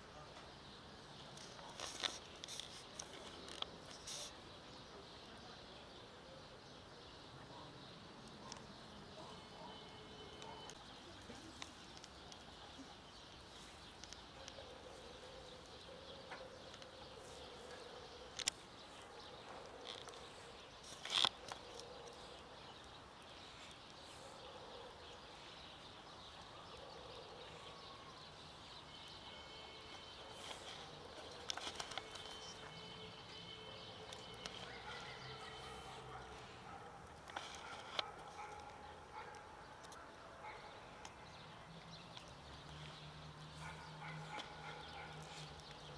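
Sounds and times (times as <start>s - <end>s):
faint outdoor background: 0.0s - 45.9s.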